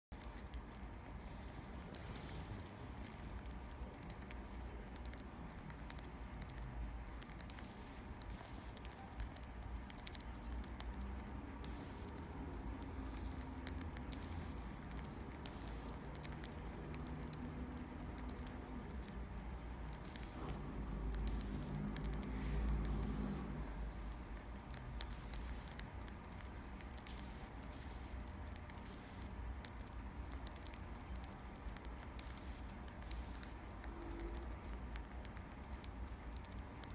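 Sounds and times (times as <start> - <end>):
faint low hum: 0.1 - 36.9.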